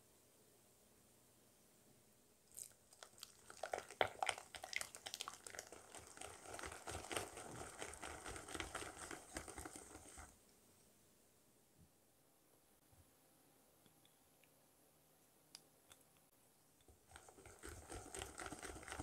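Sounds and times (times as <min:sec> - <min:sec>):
hand whisk beating batter: 0:03.0 - 0:10.4, 0:16.9 - 0:19.0.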